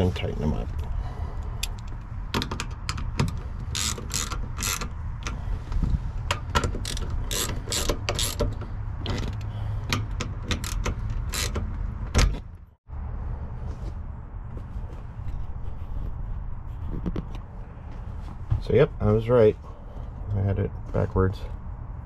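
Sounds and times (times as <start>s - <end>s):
ratchet wrench clicking: 1.6s - 5.4s, 6.3s - 11.7s.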